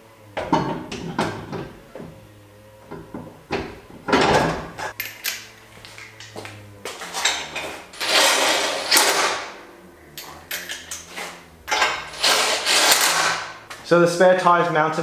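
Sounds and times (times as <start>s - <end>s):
cordless power tool spinning lug nuts: 7.0s - 13.7s.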